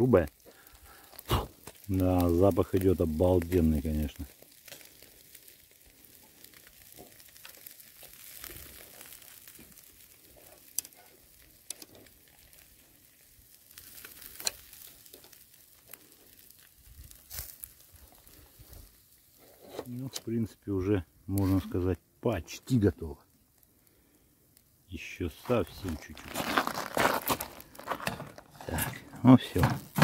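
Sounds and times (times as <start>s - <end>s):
coals crackling and popping: 0.0s - 30.0s
fish sizzling over charcoal: 0.0s - 30.0s.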